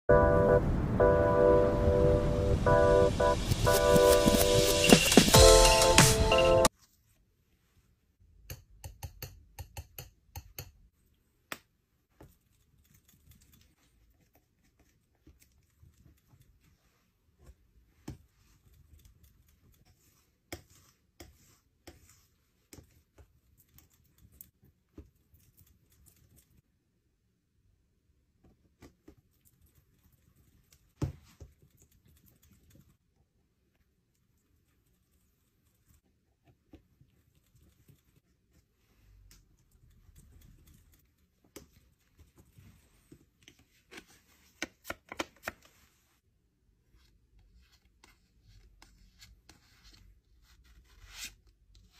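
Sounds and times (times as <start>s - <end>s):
palette knife scraping paint: 18.3s - 24.5s.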